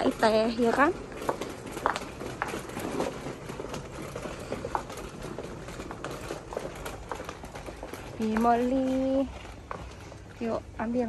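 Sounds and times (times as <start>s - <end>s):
plastic shopping trolley rattling: 0.0s - 11.0s
store background noise: 0.0s - 11.0s.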